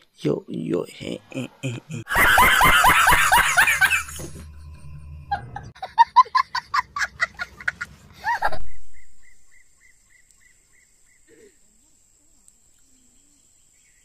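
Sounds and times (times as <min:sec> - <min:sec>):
man laughing loudly: 0:01.1 - 0:08.7
small child giggling: 0:05.3 - 0:08.7.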